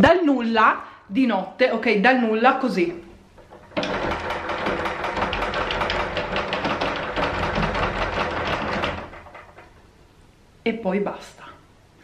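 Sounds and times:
wooden door rattling in frame: 3.3s - 9.9s.

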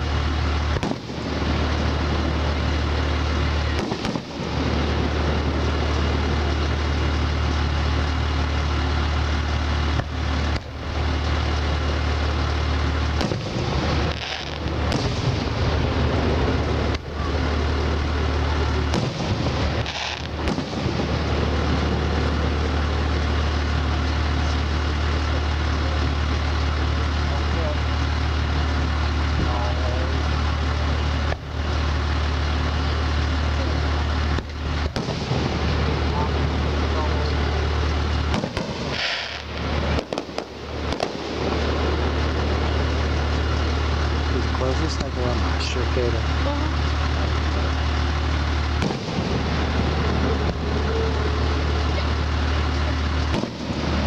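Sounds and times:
fireworks bangs: 0.0s - 8.2s, 12.8s - 24.0s, 34.2s - 54.0s
fireworks crackling hiss: 0.0s - 27.3s, 30.1s - 54.0s
low rumble: 0.0s - 54.0s
steady low hum: 0.0s - 54.0s.

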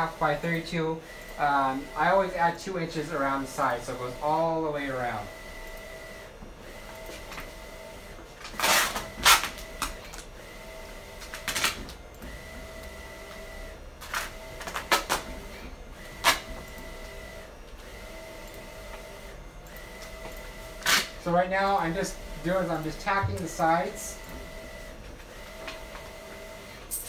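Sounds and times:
printer humming: 0.0s - 27.0s.

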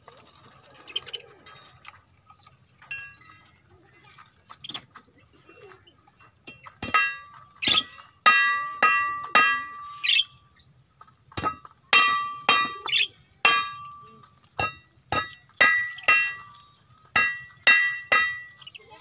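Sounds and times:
sharp metallic clangs: 6.5s - 10.4s, 11.3s - 18.8s.

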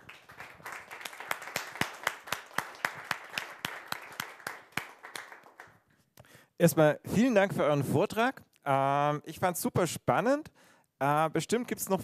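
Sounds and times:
audience applauding: 0.0s - 5.8s
nearby person clapping: 0.0s - 5.8s.

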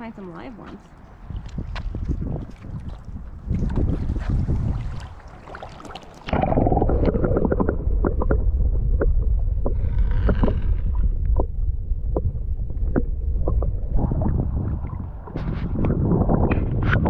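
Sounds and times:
underwater low rumble: 1.0s - 17.0s
sharp clicks and pops: 6.2s - 17.0s.

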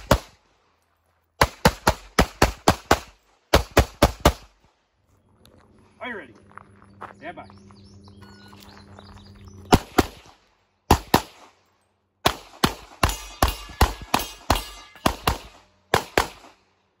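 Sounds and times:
handgun shots: 12.2s - 16.6s.

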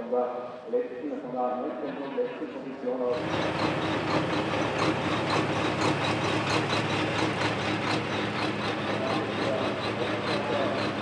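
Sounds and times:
diesel truck engines running: 3.1s - 11.0s.

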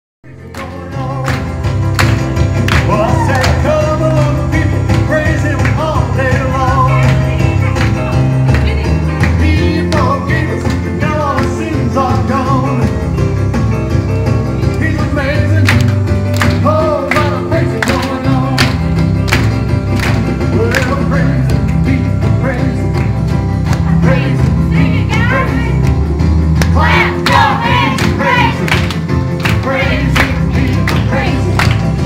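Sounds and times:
upbeat gospel song over speakers: 0.3s - 32.0s.

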